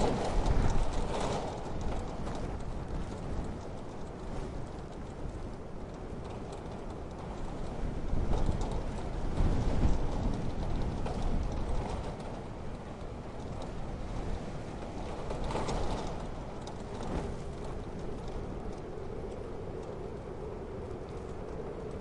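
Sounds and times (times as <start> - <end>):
low rumbling wind: 0.0 - 22.0
patter of rain drops: 0.0 - 22.0.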